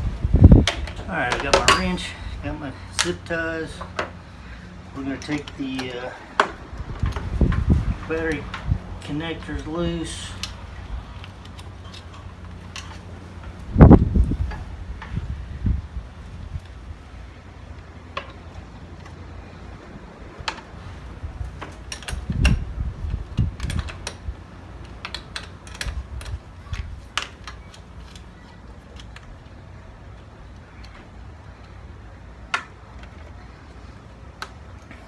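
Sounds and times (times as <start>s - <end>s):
wrench clicking on metal bolts: 24.8s - 26.4s.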